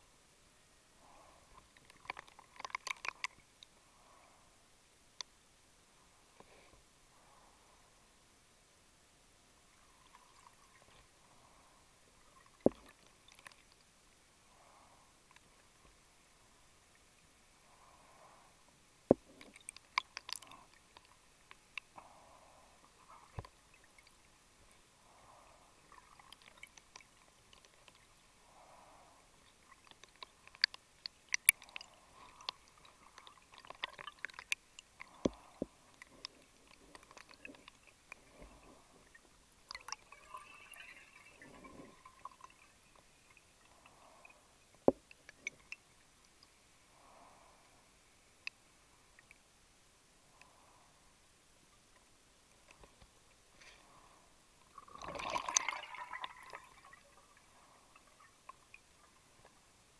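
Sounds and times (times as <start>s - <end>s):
underwater scuba breaths: 21.8s - 30.6s, 31.5s - 45.8s, 46.5s - 48.3s, 52.8s - 59.5s.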